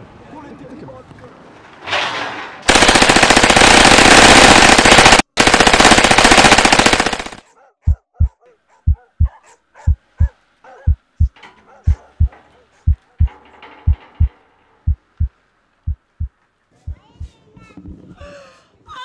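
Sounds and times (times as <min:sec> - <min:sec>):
automatic gunfire: 0:02.7 - 0:07.4
heartbeat thumps: 0:07.8 - 0:14.3, 0:14.9 - 0:18.2.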